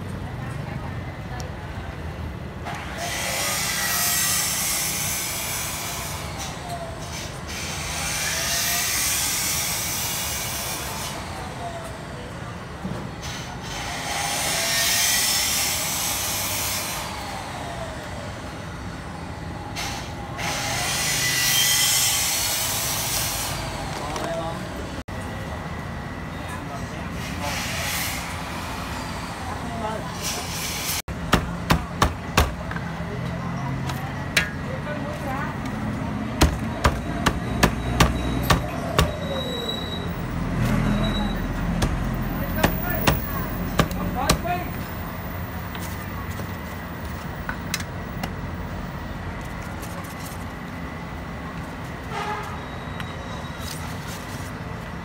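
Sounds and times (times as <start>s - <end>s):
vehicles passing: 0.0s - 52.5s
street hum: 0.0s - 55.0s
cleaver chopping on block: 31.3s - 32.6s, 36.4s - 39.2s, 41.7s - 44.5s.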